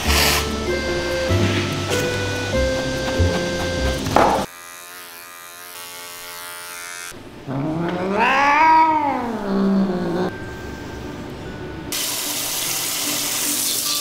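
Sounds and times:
cat meowing: 7.5s - 10.3s.

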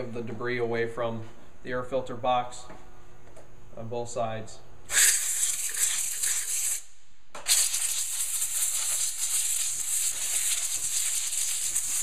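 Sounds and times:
compressed air hissing: 4.9s - 12.0s.

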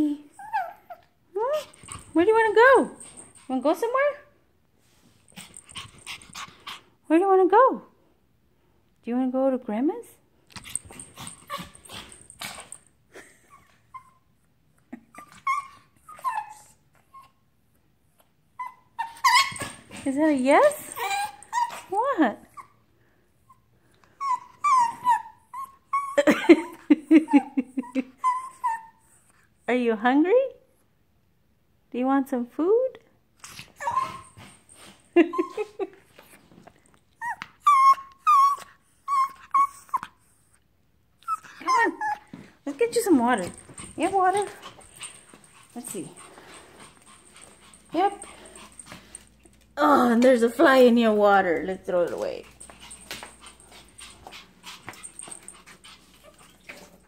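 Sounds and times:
dog whining and yipping: 0.3s - 2.2s, 10.6s - 12.8s, 13.4s - 14.3s, 15.0s - 17.4s, 18.5s - 20.1s, 20.8s - 22.8s, 24.2s - 29.3s, 33.4s - 35.8s, 37.1s - 40.2s, 41.2s - 42.4s.

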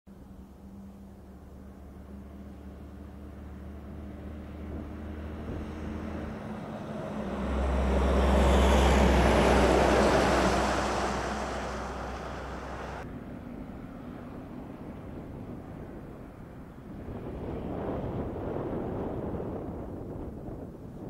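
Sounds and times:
locomotive engine hum: 0.1s - 21.0s
train wagons rumbling on rails: 4.6s - 13.0s.

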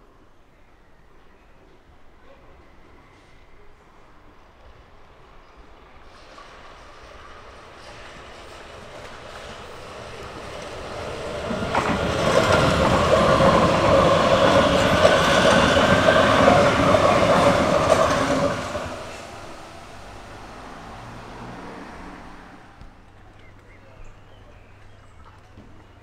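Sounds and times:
electric train passing: 4.2s - 23.1s.

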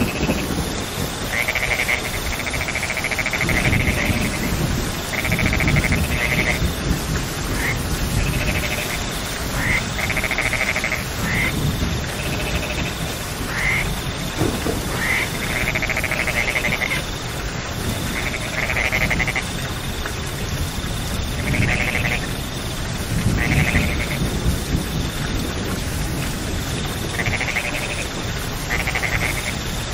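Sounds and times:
frogs rising chirps: 0.0s - 25.3s, 26.7s - 29.9s
frogs trilling: 0.0s - 29.9s
steady rain: 0.0s - 29.9s.

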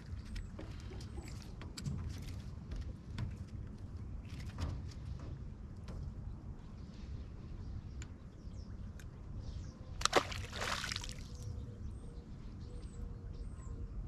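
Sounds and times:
water splash: 10.0s - 11.4s.

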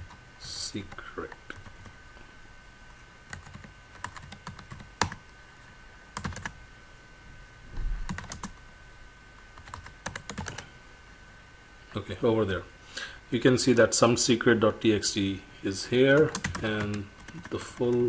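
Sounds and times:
keyboard typing: 3.3s - 5.2s, 6.2s - 6.6s, 8.1s - 8.6s, 9.6s - 10.6s, 16.1s - 18.0s.

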